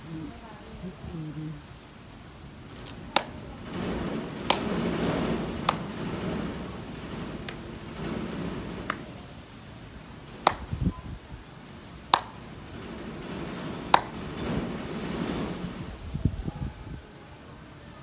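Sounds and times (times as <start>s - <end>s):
low rumbles: 0.0s - 17.1s
wind noise on microphone: 0.0s - 18.0s
hand claps: 2.8s - 3.4s, 4.4s - 6.2s, 8.8s - 9.2s, 10.4s - 10.8s, 12.1s - 12.4s, 13.9s - 14.2s.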